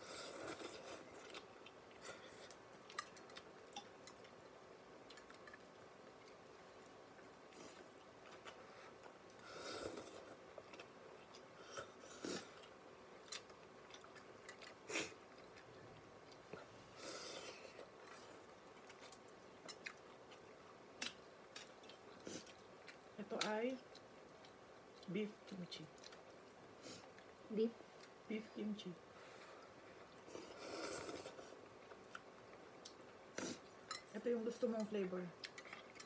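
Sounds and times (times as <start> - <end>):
person chewing: 0.1 - 4.4, 5.0 - 6.4, 7.2 - 23.1, 26.0 - 27.4, 29.4 - 34.0, 35.4 - 36.0.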